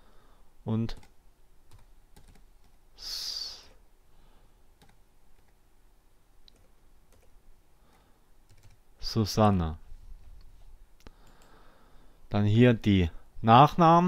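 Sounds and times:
keyboard keys clicking: 0:01.7 - 0:02.8, 0:08.5 - 0:08.8.

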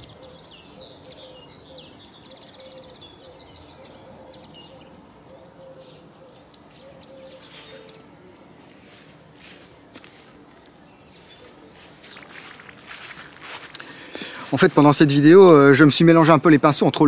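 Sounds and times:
small birds chirping: 0:00.0 - 0:15.7.

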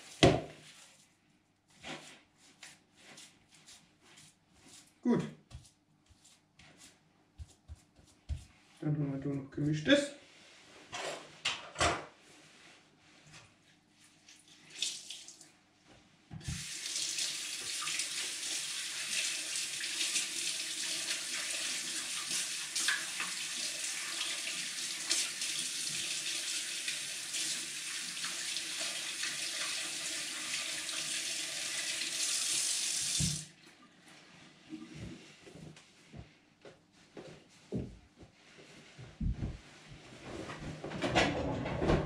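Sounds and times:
tap running into a sink: 0:16.4 - 0:16.7, 0:33.0 - 0:33.5.

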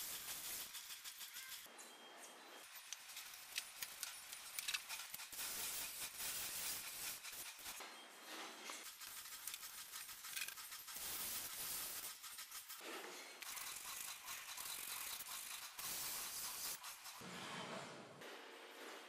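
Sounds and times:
brush rubbing on car paint: 0:08.8 - 0:12.8, 0:13.4 - 0:17.3.

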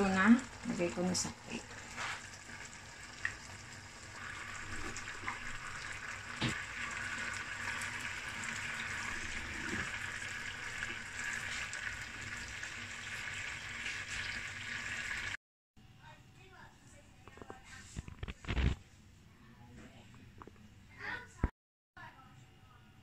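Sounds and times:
food sizzling in a pan: 0:00.0 - 0:15.4.

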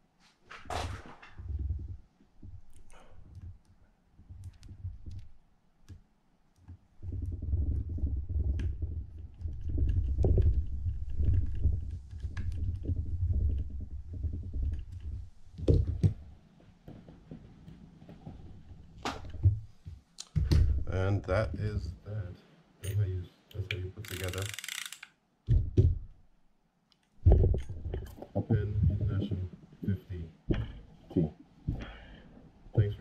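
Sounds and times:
light clicks of small parts: 0:22.8 - 0:25.2.

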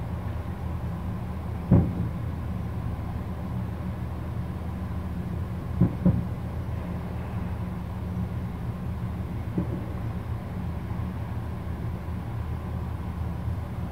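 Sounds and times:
distant firework booms: 0:01.7 - 0:02.0.

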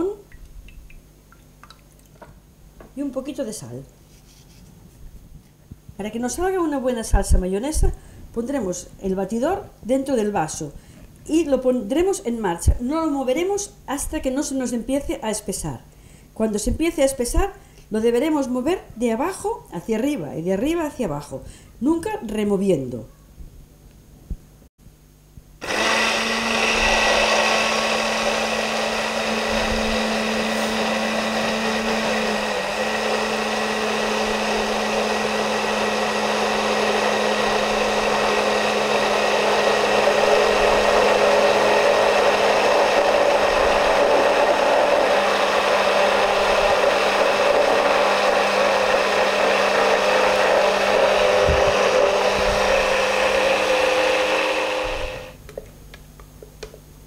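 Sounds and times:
stick blender running: 0:25.6 - 0:55.4.

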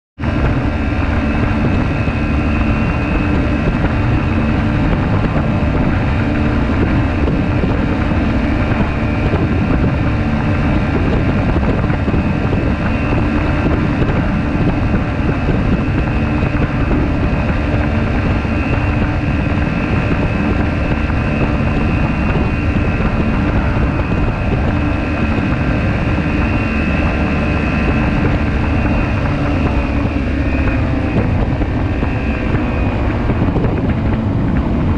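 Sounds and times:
aircraft engine and propeller: 0:00.2 - 0:34.9
wind rushing over microphone: 0:00.2 - 0:34.9.

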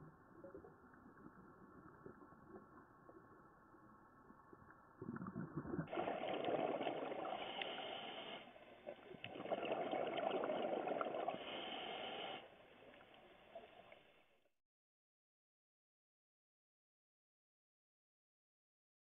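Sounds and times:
underwater regulator bubbles: 0:04.9 - 0:12.4.

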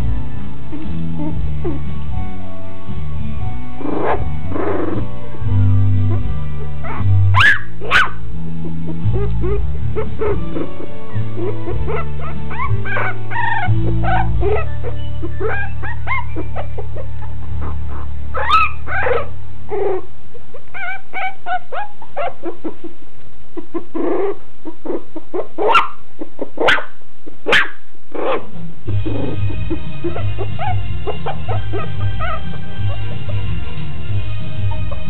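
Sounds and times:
music with steady bass: 0:00.0 - 0:20.3, 0:27.5 - 0:35.0
dog yipping and whimpering: 0:00.7 - 0:01.8, 0:03.8 - 0:05.1, 0:06.1 - 0:23.0, 0:23.6 - 0:33.5.

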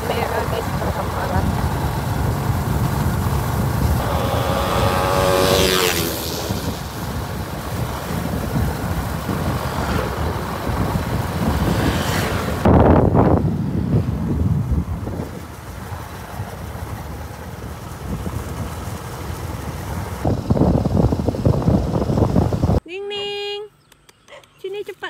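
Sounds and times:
vehicle passing by: 0:00.0 - 0:16.6
vehicle engine rumble: 0:00.0 - 0:22.8
wind rushing over microphone: 0:00.0 - 0:22.8.

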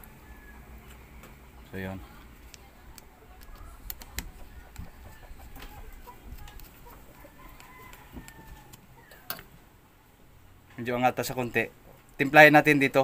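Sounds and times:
chickens clucking: 0:03.6 - 0:09.4.

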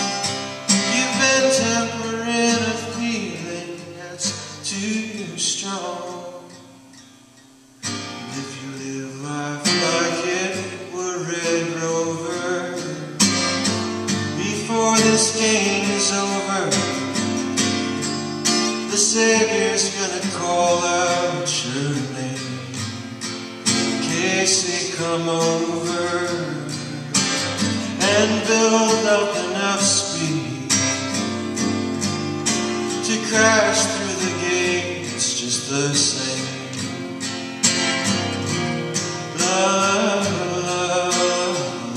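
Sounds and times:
acoustic guitar: 0:00.0 - 0:41.9
man singing: 0:00.7 - 0:06.6, 0:08.2 - 0:13.5, 0:14.1 - 0:17.3, 0:18.7 - 0:23.0, 0:23.9 - 0:31.2, 0:32.9 - 0:37.0, 0:39.0 - 0:41.9.

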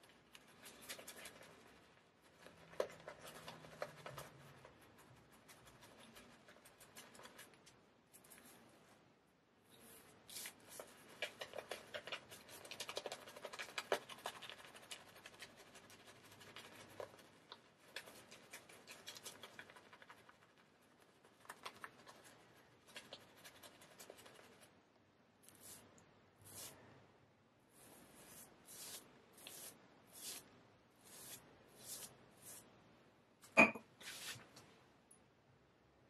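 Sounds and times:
shaving brush scratching lather: 0:25.4 - 0:25.8, 0:26.4 - 0:26.8, 0:27.8 - 0:32.6.

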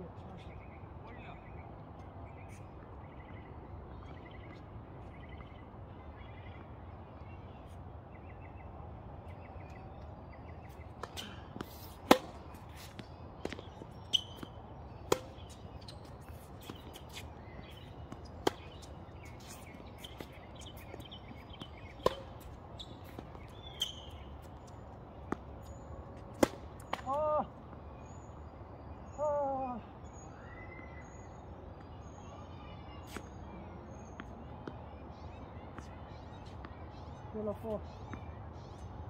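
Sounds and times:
tennis ball struck and bouncing: 0:11.0 - 0:24.2, 0:26.3 - 0:27.2.

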